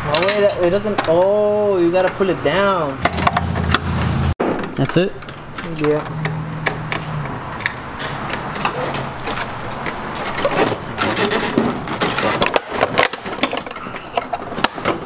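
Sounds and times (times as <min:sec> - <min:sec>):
plastic and metal parts clicking: 0:04.6 - 0:15.0.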